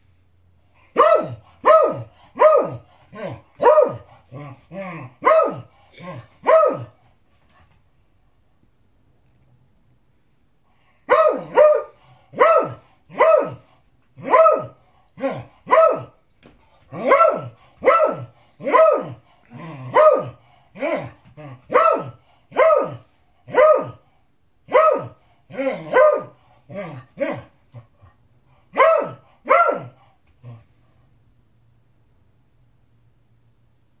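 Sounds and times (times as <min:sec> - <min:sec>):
dog barking: 0:00.9 - 0:04.1, 0:05.2 - 0:07.0, 0:11.0 - 0:16.2, 0:16.9 - 0:19.2, 0:19.9 - 0:24.0, 0:24.7 - 0:27.5, 0:28.7 - 0:30.0.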